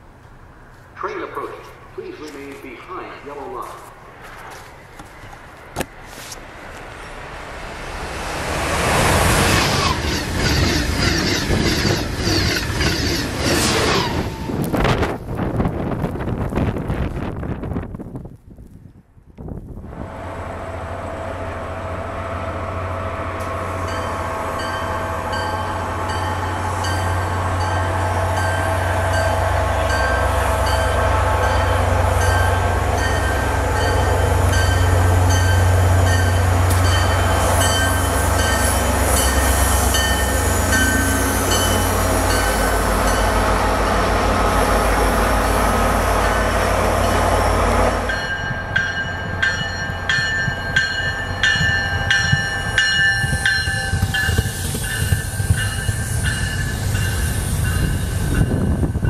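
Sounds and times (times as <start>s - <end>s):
diesel train passing: 0.0s - 18.0s, 19.6s - 59.0s
bell ringing: 48.1s - 57.9s.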